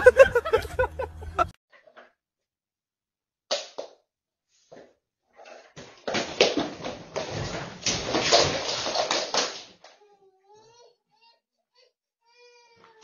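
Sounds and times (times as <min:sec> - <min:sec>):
plastic playpen clattering to floor: 0:05.4 - 0:09.9.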